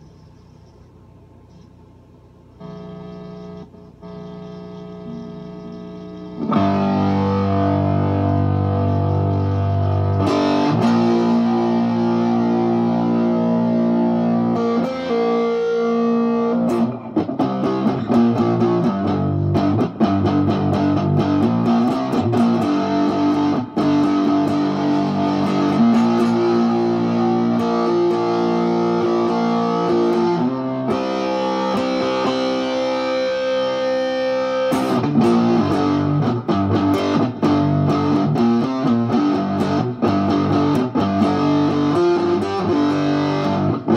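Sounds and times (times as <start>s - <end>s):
electric guitar notes: 2.6s - 43.9s.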